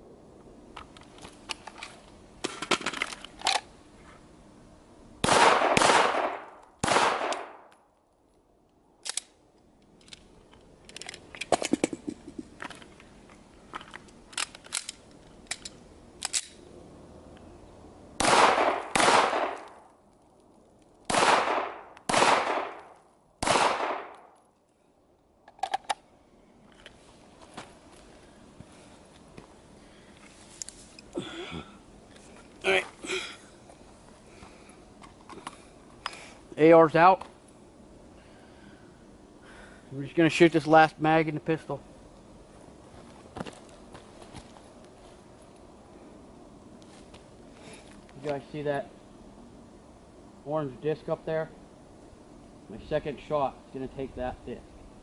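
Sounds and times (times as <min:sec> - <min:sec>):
gunshots with ringing echo: 0:05.2 - 0:07.7, 0:18.2 - 0:19.7, 0:21.1 - 0:22.8, 0:23.4 - 0:24.2.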